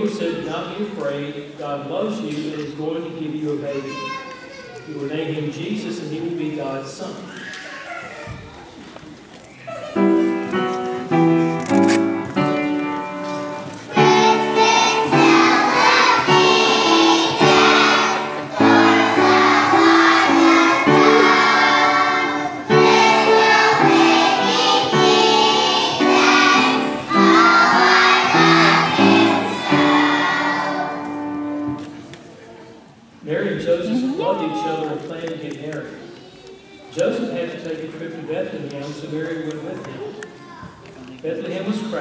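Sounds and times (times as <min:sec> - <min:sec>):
instrumental accompaniment: 0:10.0 - 0:32.1
children singing: 0:13.9 - 0:31.6.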